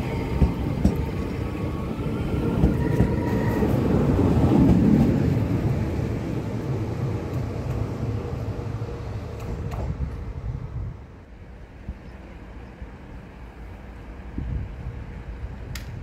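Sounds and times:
train wheels rumbling past: 0:00.0 - 0:11.0.

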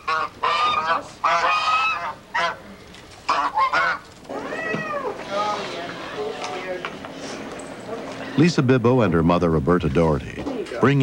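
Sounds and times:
geese honking: 0:00.0 - 0:04.5.

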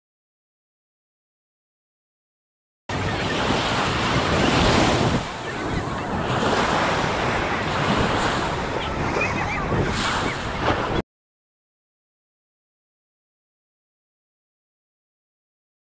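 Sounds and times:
ocean surf on beach: 0:02.9 - 0:11.0
wind buffeting microphone: 0:03.0 - 0:11.0.

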